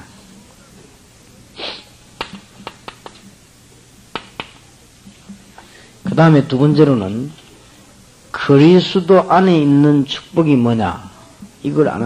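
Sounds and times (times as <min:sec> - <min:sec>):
person sniffing: 0:01.6 - 0:01.9
man talking: 0:06.0 - 0:07.4, 0:08.3 - 0:12.0.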